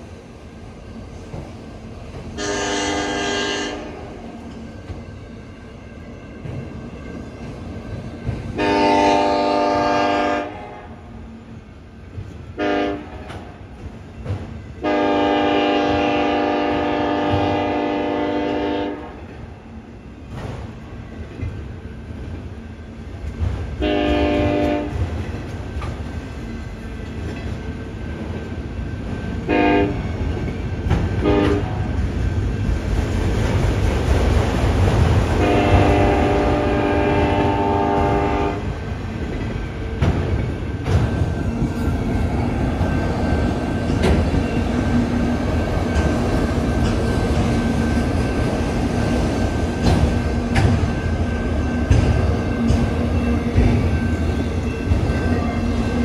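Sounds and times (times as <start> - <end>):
train cars rumbling and clacking: 0.0 - 56.0
locomotive air horn blasts: 2.4 - 4.2, 8.6 - 11.0, 12.6 - 13.3, 14.8 - 19.2, 23.8 - 25.0, 29.5 - 30.0, 31.2 - 31.8, 35.4 - 38.7.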